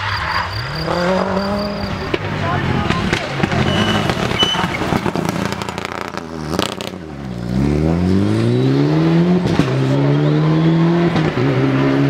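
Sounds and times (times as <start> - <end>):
rally car engine accelerating: 0.0 - 12.0
sharp exhaust pops: 2.1 - 7.0.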